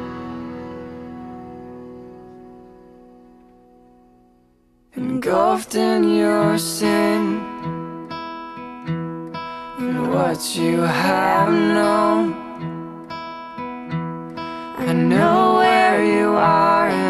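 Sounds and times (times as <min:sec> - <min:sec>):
acoustic guitar: 0:00.0 - 0:17.0
person singing: 0:05.0 - 0:07.8, 0:09.7 - 0:12.8, 0:14.5 - 0:17.0.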